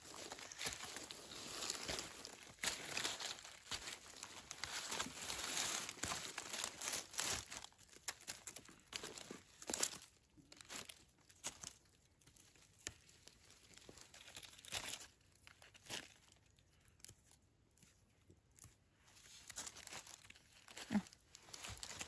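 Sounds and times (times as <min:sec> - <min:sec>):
rustling and crackling: 0:00.0 - 0:22.0.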